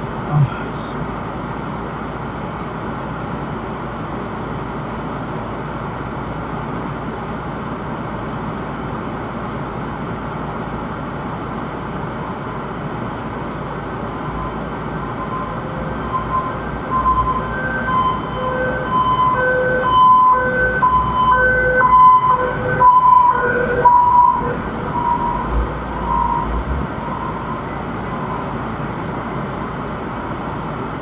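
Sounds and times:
car road noise: 0:00.0 - 0:31.0
two-tone emergency siren: 0:14.0 - 0:28.8.

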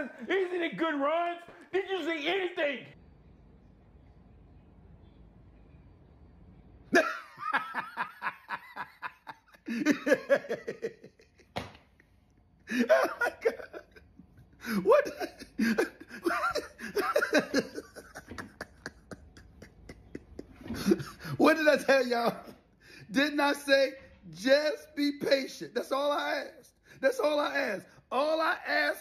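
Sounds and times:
man laughing hard: 0:07.0 - 0:11.5, 0:12.6 - 0:22.5.

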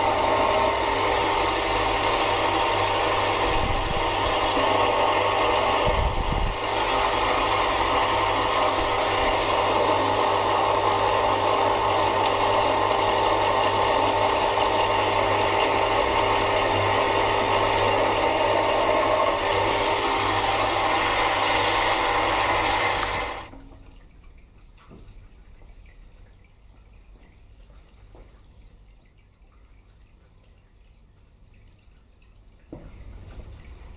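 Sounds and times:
lathe cutting hiss: 0:00.0 - 0:23.5
lathe motor hum: 0:00.0 - 0:23.5.

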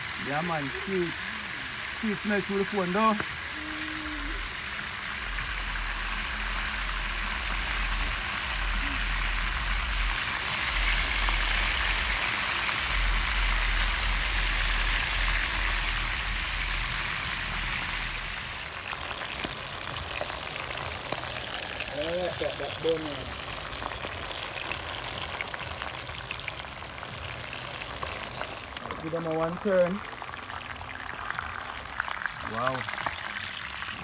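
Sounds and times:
food deep-frying in oil: 0:00.0 - 0:34.0
low rumble: 0:03.2 - 0:21.5.

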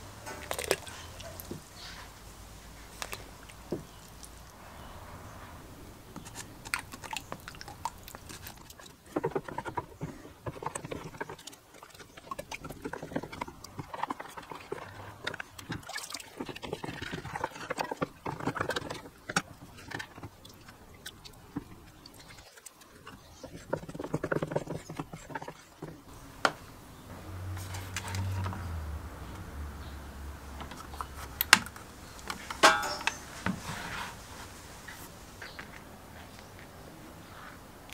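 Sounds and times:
water sloshing in a plastic bucket: 0:06.1 - 0:26.2
handling noise: 0:30.5 - 0:36.8.

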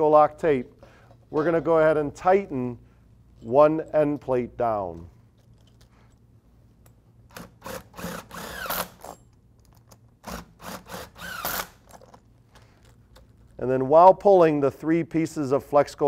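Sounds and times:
impact driver whirring: 0:07.3 - 0:09.1, 0:10.2 - 0:11.9.

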